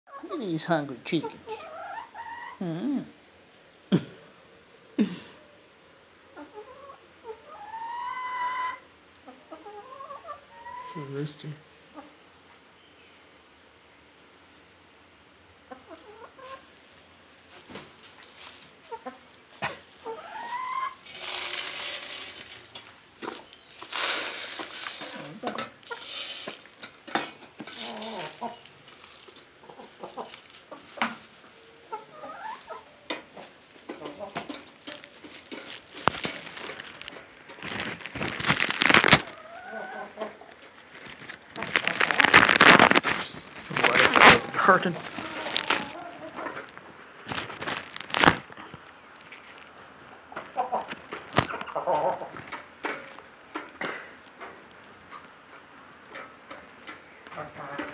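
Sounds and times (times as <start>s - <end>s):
chickens clucking: 0.1s - 2.7s, 4.4s - 12.6s, 15.3s - 57.9s
loud rustling: 21.0s - 31.4s, 34.4s - 39.4s, 40.9s - 48.5s.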